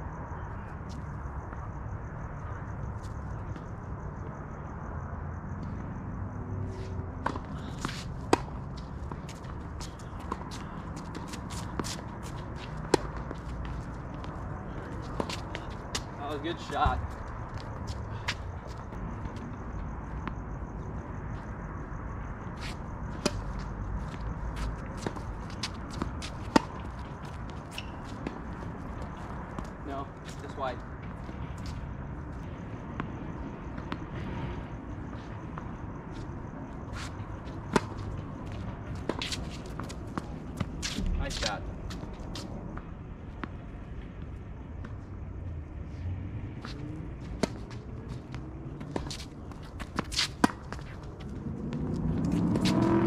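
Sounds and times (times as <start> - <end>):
footsteps and shoe scuffs: 6.6 - 19.5, 22.6 - 29.6, 35.0 - 42.8, 46.0 - 53.0.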